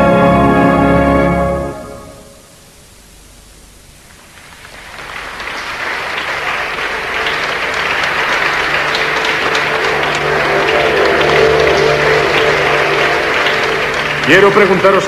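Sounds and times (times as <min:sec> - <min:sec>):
steady low tones: 0:00.0 - 0:15.0
crowd applauding: 0:04.1 - 0:15.0.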